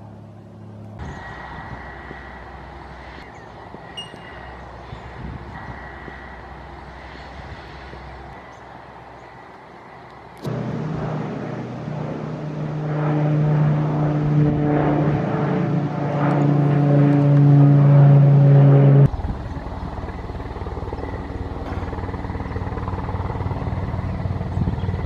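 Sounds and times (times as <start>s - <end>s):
helicopter rotor chopping: 0.0s - 25.0s
propeller aircraft droning: 0.0s - 25.0s.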